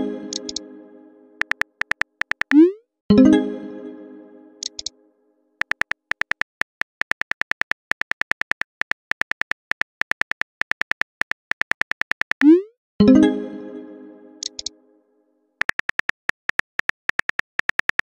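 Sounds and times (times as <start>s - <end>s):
phone keyboard key clicks: 1.4s - 2.6s, 4.6s - 4.9s, 5.6s - 12.4s, 14.4s - 14.7s, 15.6s - 18.0s.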